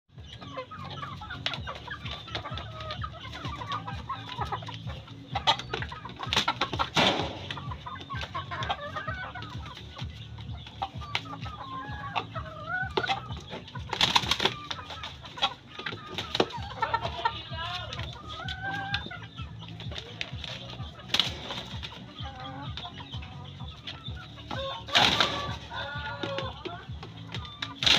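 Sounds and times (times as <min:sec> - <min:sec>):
chickens clucking: 0:00.1 - 0:27.9
wing-flapping and scuffling: 0:00.8 - 0:27.9.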